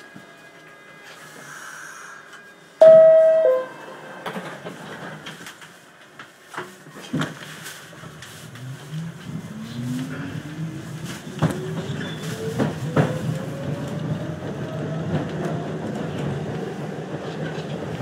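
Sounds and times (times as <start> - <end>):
train low rumble: 1.4 - 18.0
two-tone door chime: 2.8 - 3.9.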